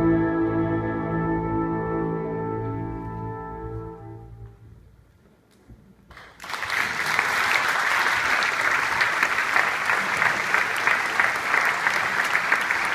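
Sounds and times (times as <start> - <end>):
brass band playing: 0.0 - 4.6
audience applause: 6.1 - 12.9.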